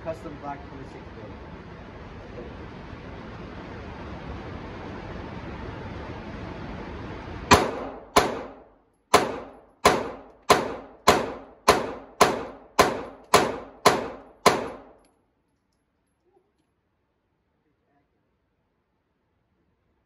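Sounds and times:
pistol shots echoing indoors: 7.5s - 15.1s.

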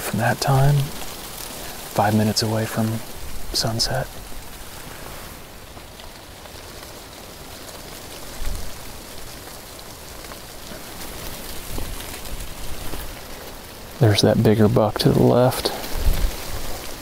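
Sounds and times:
wind through trees and grass: 0.0s - 17.0s
wind bump on microphone: 15.9s - 16.8s.

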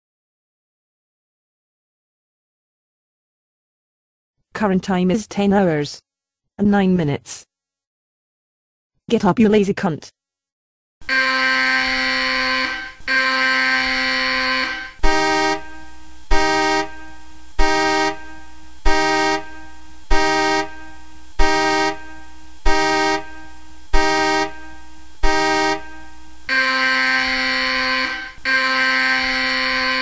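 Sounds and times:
alarm tones from computer speakers: 11.0s - 30.0s.

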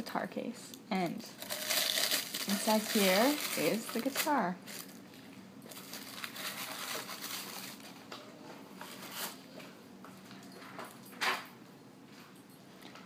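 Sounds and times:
tissue paper rustling: 1.4s - 5.0s, 5.7s - 7.9s.

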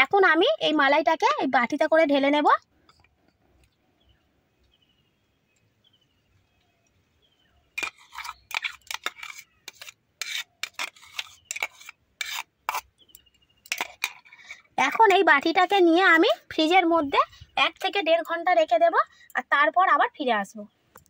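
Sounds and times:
spoon scraping a steel jar: 7.8s - 15.2s.

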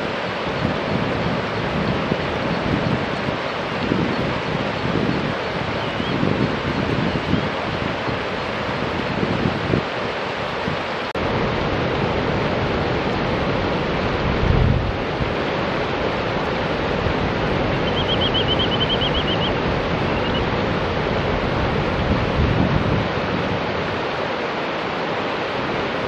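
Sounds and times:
river water rushing over rocks: 0.0s - 26.0s
wind buffeting microphone: 0.0s - 26.0s
bird giving high sharp notes: 17.8s - 20.4s.

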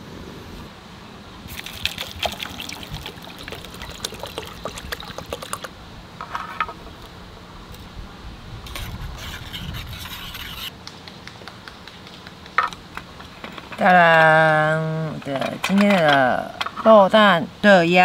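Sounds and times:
drink pouring into metal mug: 1.5s - 5.7s.

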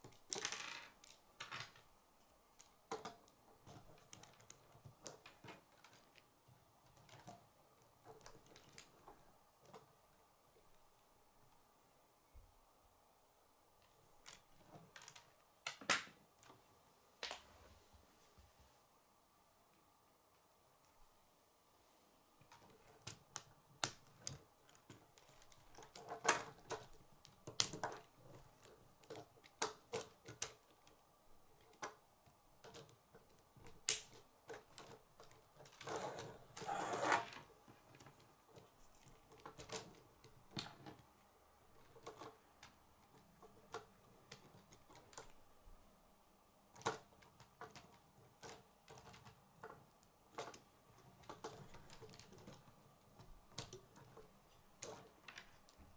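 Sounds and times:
plastic model rattling: 0.0s - 1.9s, 46.7s - 55.9s
plastic pieces clicking and snapping: 0.1s - 1.8s, 13.8s - 16.6s, 22.5s - 31.0s, 32.6s - 41.0s, 46.7s - 54.2s.

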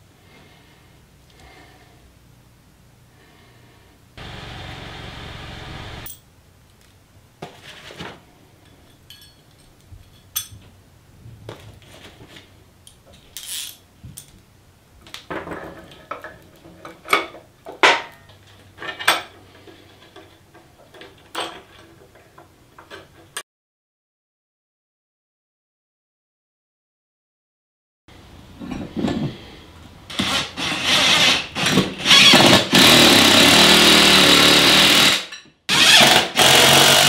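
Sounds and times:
metal hardware clinking: 8.9s - 10.6s.

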